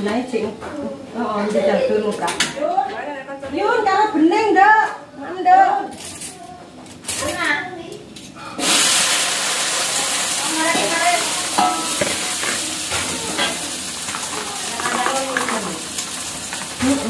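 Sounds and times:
food sizzling in hot oil: 8.6 - 17.0.

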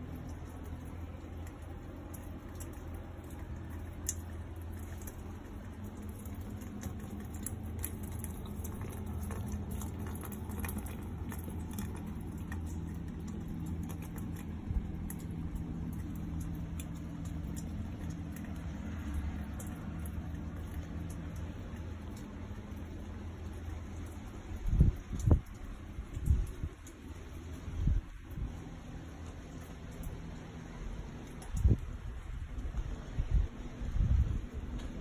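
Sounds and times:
rain pattering and dripping: 0.0 - 35.0
steady low hum: 0.0 - 35.0.

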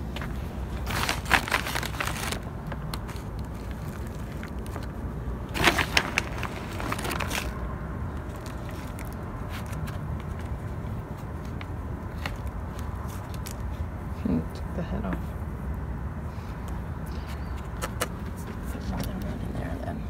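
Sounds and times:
rustling: 0.0 - 13.8
soil crackling in plastic pots: 0.0 - 14.3.

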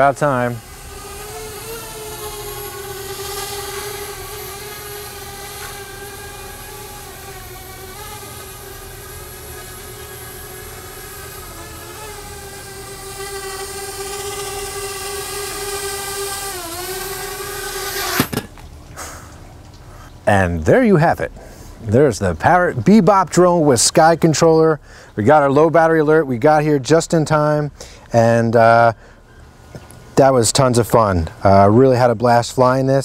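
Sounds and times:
drone propellers whining: 0.0 - 18.6.

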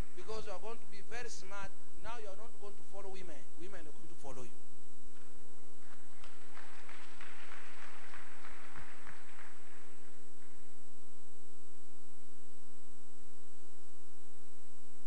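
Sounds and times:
electrical mains hum: 0.0 - 15.0
congregation applauding: 5.8 - 11.0.

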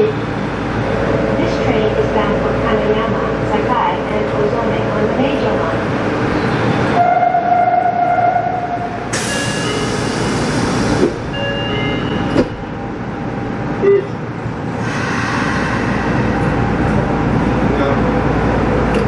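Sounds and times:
train air hiss: 9.1 - 11.1, 14.8 - 16.6.

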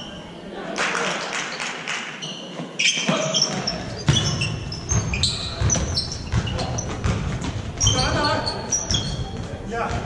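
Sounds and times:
sneakers squeaking: 1.5 - 10.0
basketball bouncing on hardwood: 3.5 - 8.2.

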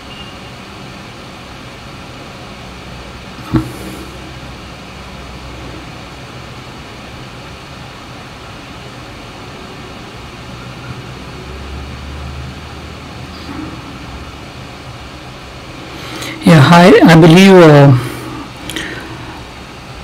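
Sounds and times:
room noise hiss: 0.0 - 20.0.

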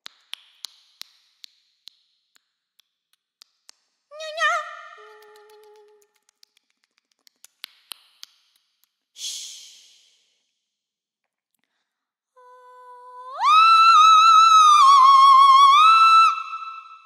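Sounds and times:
woman singing sustained note: 12.4 - 17.0.

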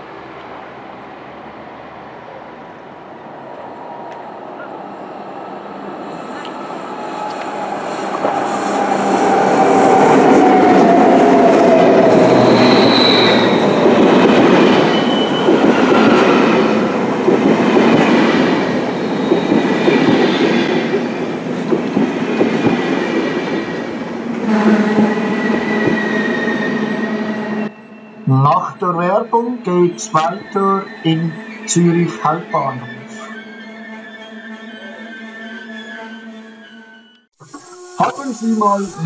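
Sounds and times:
train wheels rolling on rails: 2.8 - 28.1
high wheel squeals: 12.1 - 13.9, 14.8 - 16.7, 24.5 - 28.3, 30.3 - 31.7, 32.8 - 39.0.

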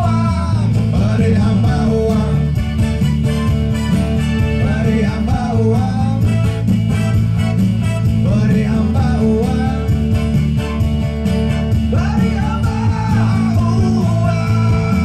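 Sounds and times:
man singing into a microphone: 0.0 - 2.7, 4.4 - 6.4, 8.2 - 10.1, 11.9 - 15.0
acoustic guitar: 0.0 - 15.0
keyboard playing: 0.0 - 15.0.

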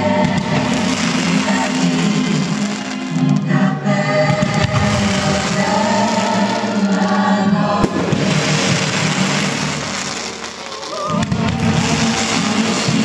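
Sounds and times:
fireworks hissing and crackling: 0.0 - 13.0
loud show music: 0.0 - 13.0
fireworks bang: 4.2 - 13.0.

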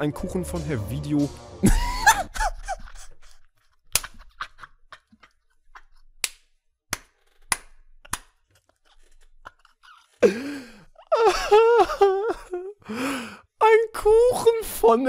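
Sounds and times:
person speaking: 0.0 - 1.5, 13.6 - 15.0
sharp clicks or snaps: 3.9 - 4.3.

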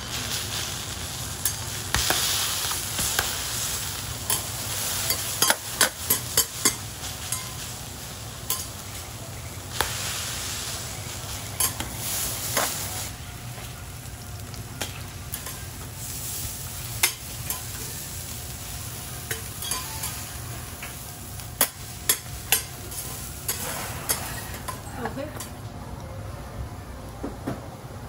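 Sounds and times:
food sizzling on a griddle: 0.0 - 25.6
metal spatulas clacking on griddle: 5.1 - 7.6, 19.3 - 20.2, 21.6 - 22.7.

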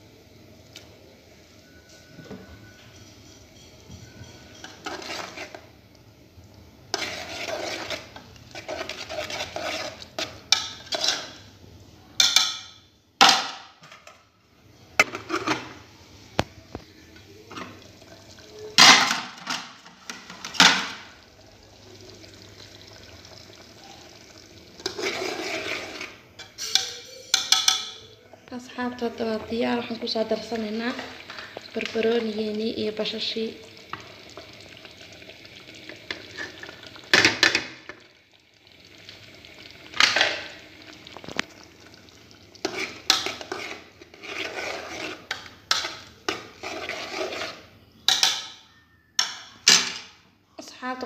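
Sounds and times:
metal spoon scraping a pot: 2.8 - 5.7, 6.9 - 11.5, 24.8 - 28.2, 36.1 - 36.8, 42.6 - 49.5.

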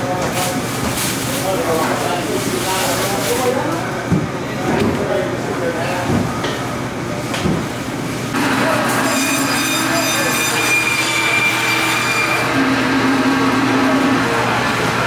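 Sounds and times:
bandsaw whine: 8.4 - 15.0
saw blade squealing: 9.0 - 12.5.

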